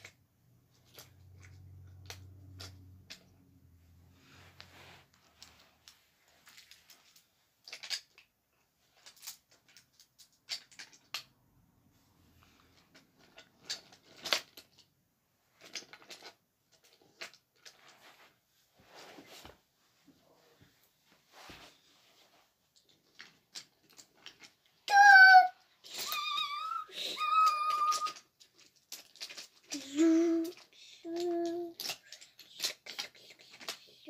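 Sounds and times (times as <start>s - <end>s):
wooden toy trains clicking: 22.8s - 34.0s.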